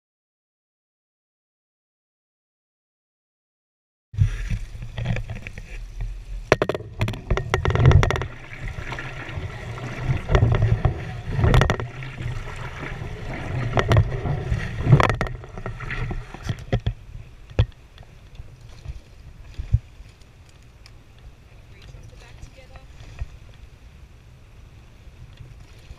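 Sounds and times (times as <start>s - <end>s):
water rushing along a hull: 4.2s - 25.9s
wind buffeting microphone: 4.2s - 25.9s
sharp knocks from boat: 4.5s - 18.1s.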